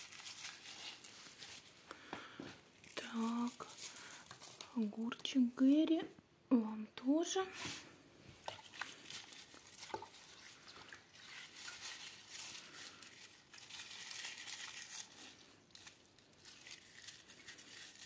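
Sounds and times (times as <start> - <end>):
wet leaves rustling: 0.0 - 1.8, 8.5 - 18.0.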